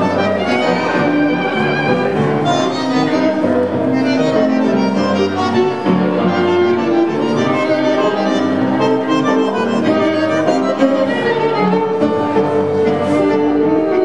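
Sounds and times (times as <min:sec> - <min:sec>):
bandoneon: 0:00.0 - 0:14.0
piano: 0:00.0 - 0:14.0
violin: 0:00.0 - 0:14.0.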